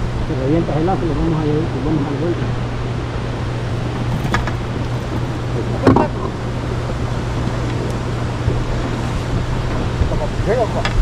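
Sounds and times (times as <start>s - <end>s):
boat motor humming: 0.0s - 11.0s
water noise: 0.0s - 11.0s
wind: 0.0s - 11.0s.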